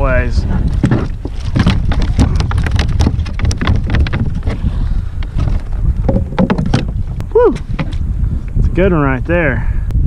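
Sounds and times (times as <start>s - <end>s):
water lapping against plastic hull: 0.0s - 8.0s
wind buffeting microphone: 0.0s - 10.0s
gear clicks and knocks: 0.6s - 4.6s.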